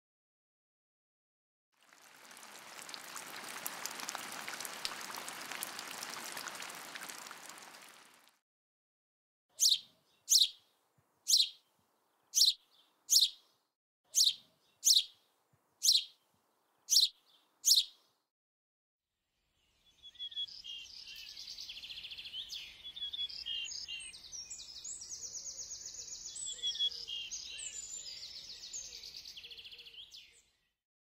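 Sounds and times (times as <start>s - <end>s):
crackling hiss: 1.8s - 8.3s
songbird chirping: 9.5s - 18.2s, 19.5s - 30.7s.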